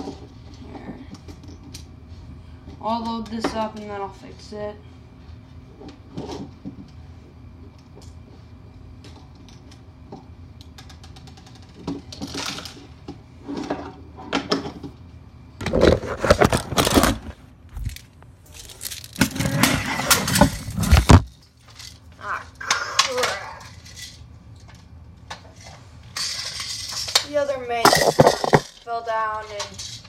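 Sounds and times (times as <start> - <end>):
camera mount rattling and knocking: 27.9 - 28.6.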